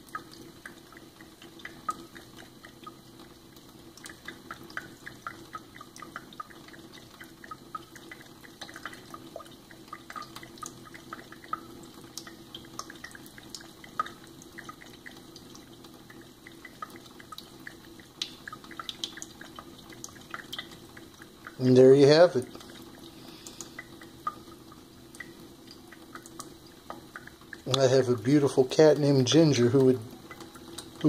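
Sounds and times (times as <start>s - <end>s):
cat lapping water: 0.0s - 28.2s
water running into metal sink: 0.0s - 31.0s.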